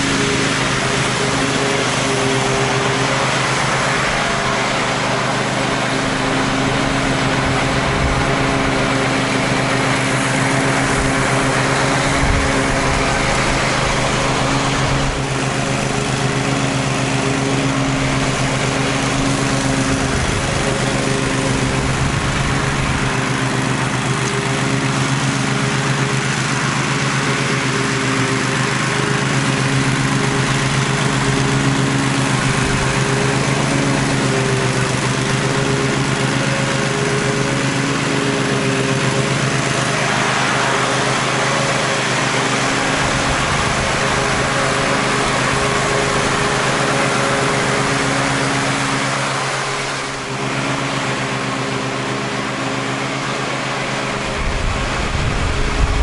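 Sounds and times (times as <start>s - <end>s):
riding lawn mower engine: 0.0s - 56.0s.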